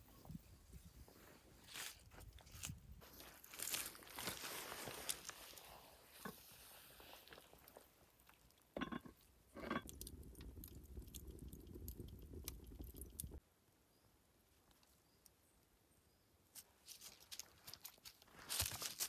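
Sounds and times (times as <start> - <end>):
wood fire crackling: 3.5 - 13.4.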